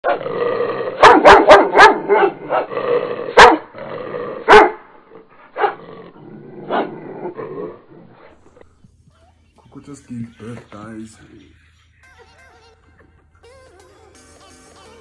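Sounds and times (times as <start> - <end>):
dog barking loudly: 1.0 - 2.7, 3.3 - 3.7, 4.4 - 4.9, 5.6 - 5.8, 6.7 - 6.9.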